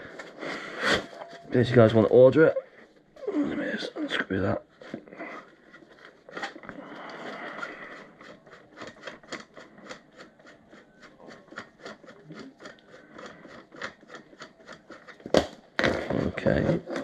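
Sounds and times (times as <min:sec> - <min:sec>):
plastic and foam rubbing: 0:04.4 - 0:17.0.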